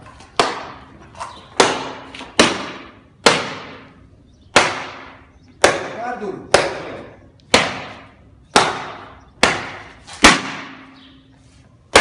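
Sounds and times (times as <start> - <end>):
baton whacks on hard plastic: 0.3 - 0.9, 1.5 - 3.9, 4.5 - 11.0.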